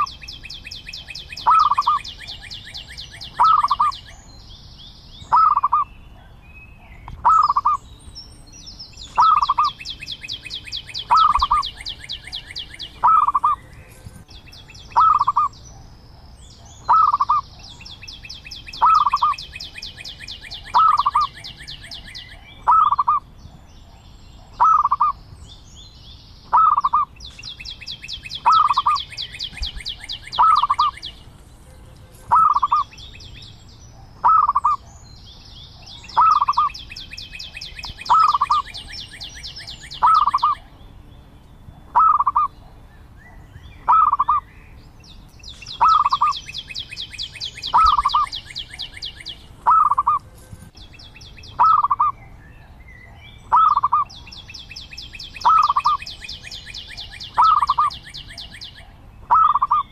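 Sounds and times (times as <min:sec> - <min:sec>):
dove cooing: 0:00.9 - 0:04.2, 0:05.3 - 0:05.8, 0:07.2 - 0:07.8, 0:09.2 - 0:09.8, 0:11.0 - 0:14.1, 0:14.9 - 0:15.5, 0:16.8 - 0:17.8, 0:18.8 - 0:19.5, 0:20.4 - 0:23.2, 0:24.6 - 0:25.2, 0:26.5 - 0:27.1, 0:28.4 - 0:31.1, 0:32.3 - 0:32.9, 0:34.2 - 0:34.8, 0:36.1 - 0:36.7, 0:37.8 - 0:38.9, 0:40.0 - 0:40.6, 0:41.9 - 0:42.5, 0:43.9 - 0:44.4, 0:49.6 - 0:50.3, 0:51.6 - 0:52.1, 0:53.5 - 0:54.1, 0:55.4 - 0:56.0, 0:57.4 - 0:57.9, 0:59.3 - 0:59.9.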